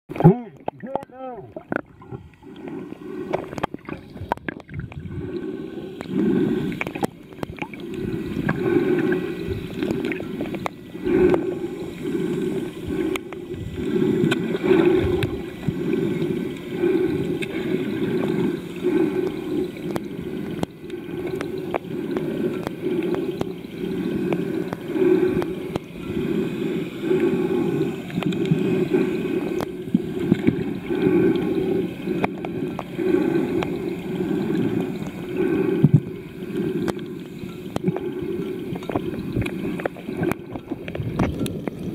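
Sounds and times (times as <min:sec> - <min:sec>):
water gurgling underwater: 0:00.1 - 0:26.4
faint ticks: 0:00.6 - 0:41.9.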